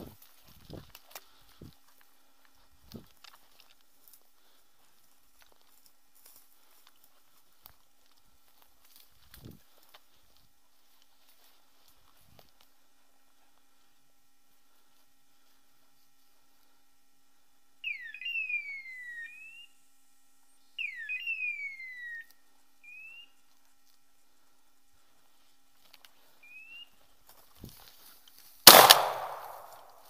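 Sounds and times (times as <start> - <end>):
beeper collar chirping: 20.7 - 23.4
shotgun shot: 28.7 - 30.0.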